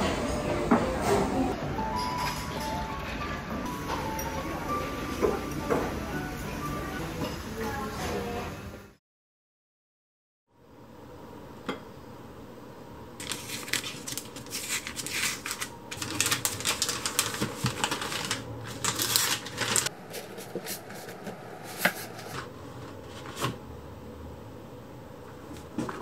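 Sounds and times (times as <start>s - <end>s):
paper crinkling and rustling: 13.2s - 23.6s.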